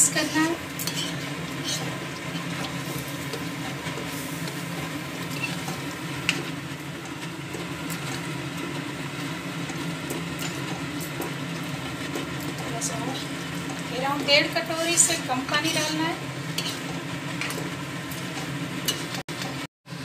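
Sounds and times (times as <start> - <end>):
spatula scraping metal pan: 0.0 - 4.6, 5.2 - 5.8, 12.8 - 17.7
spatula stirring gravy in pan: 0.1 - 19.3.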